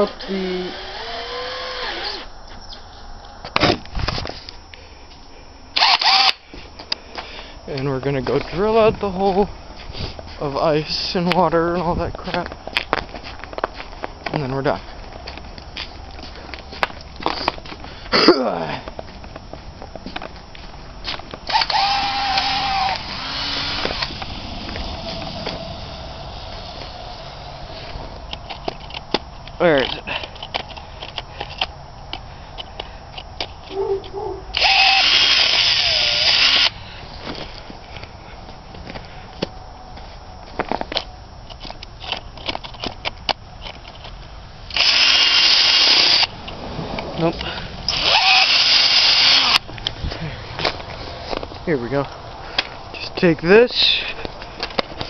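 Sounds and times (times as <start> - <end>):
cordless drill whining: 0.0 - 2.3, 5.8 - 6.4, 21.4 - 24.3, 34.5 - 36.8, 44.7 - 46.3, 47.9 - 49.6
footsteps crunching on snow: 6.5 - 22.0, 23.8 - 29.8, 36.8 - 41.8.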